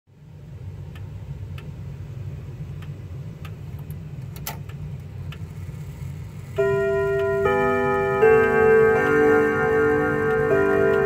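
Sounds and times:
low steady hum: 0.1s - 11.0s
clock ticking: 6.5s - 11.0s.

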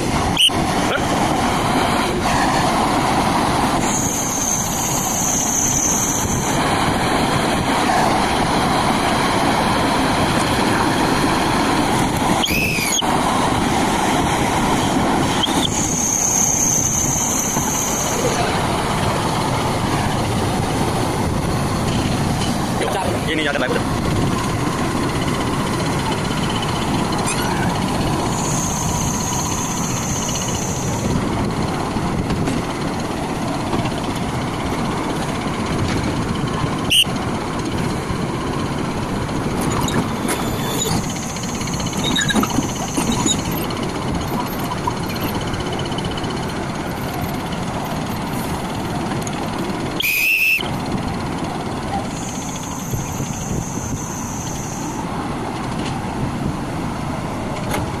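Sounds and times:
excavator diesel engine running: 0.0s - 58.0s
brief high squeal: 3.8s - 6.5s, 12.4s - 13.1s, 15.4s - 18.4s, 27.2s - 31.0s, 39.8s - 43.7s, 50.0s - 50.7s, 52.2s - 55.0s.

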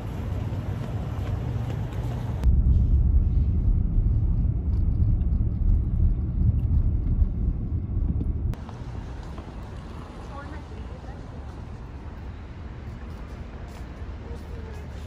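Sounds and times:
outdoor wind noise: 0.0s - 15.0s
car driving rumble inside cabin: 2.2s - 8.6s.

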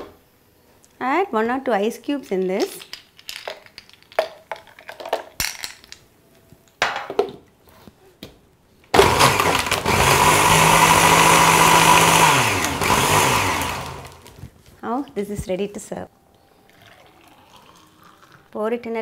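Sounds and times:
mixer grinder whining: 9.0s - 14.4s.

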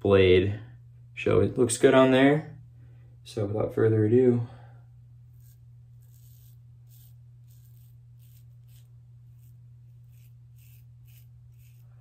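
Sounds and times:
steady low hum: 0.0s - 12.0s
razor scraping stubble: 5.3s - 12.0s.

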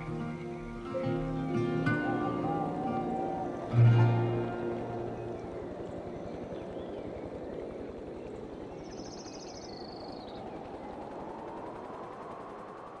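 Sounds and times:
high rapid bird trill: 0.0s - 11.2s
rushing outdoor ambience: 0.0s - 13.0s.

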